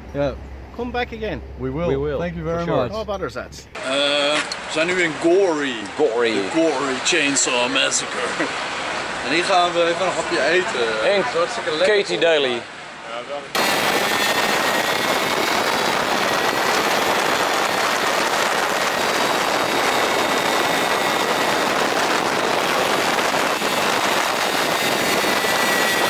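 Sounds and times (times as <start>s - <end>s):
wind rush: 13.6s - 26.0s.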